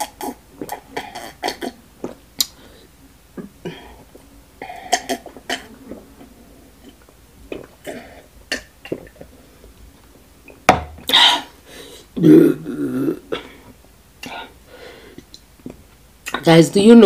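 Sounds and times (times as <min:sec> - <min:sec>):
person gulping water: 0:00.0 - 0:02.6, 0:03.3 - 0:09.4
glass set down knock: 0:10.7 - 0:11.0.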